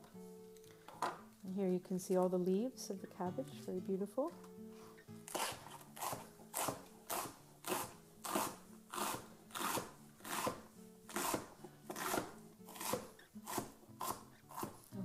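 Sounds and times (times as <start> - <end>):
quiet background music: 0.0 - 15.0
knife slicing cabbage on board: 5.3 - 15.0.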